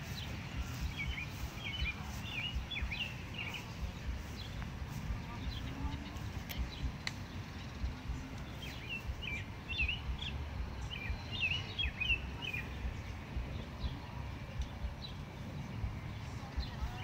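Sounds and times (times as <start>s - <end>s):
songbird chirping: 0.0s - 17.0s
steady low rumble: 0.0s - 17.0s.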